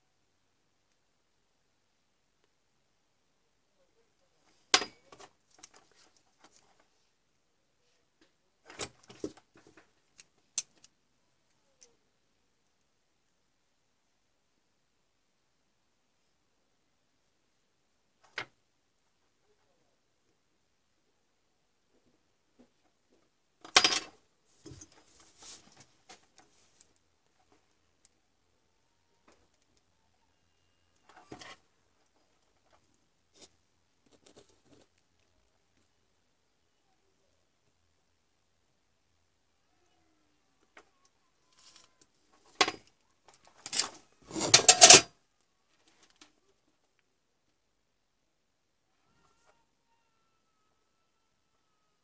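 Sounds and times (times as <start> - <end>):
small metal clinks and rattles: 42.6 - 45.1.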